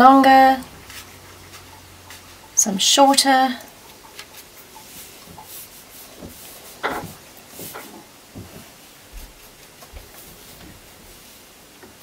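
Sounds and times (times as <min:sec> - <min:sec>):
brush dabbing in plastic tray: 0:00.0 - 0:11.4
paintbrush stroking canvas: 0:00.8 - 0:02.4, 0:04.3 - 0:06.8
knock or rustle: 0:06.2 - 0:10.8.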